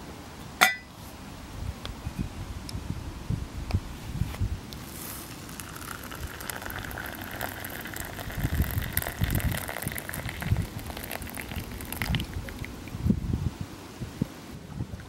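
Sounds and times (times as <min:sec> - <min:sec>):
water pouring into cup: 0:05.4 - 0:12.7.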